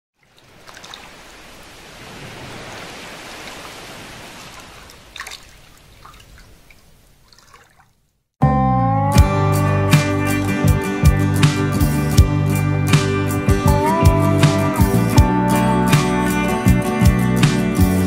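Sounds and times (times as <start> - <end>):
water drips: 0.2 - 8.2
water trickling: 0.2 - 8.2
guitar music: 8.4 - 18.0.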